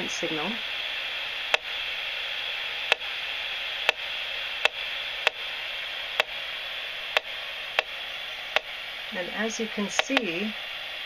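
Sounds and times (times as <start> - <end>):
steady hiss: 0.0 - 11.0
sharp clicks: 10.0 - 10.4.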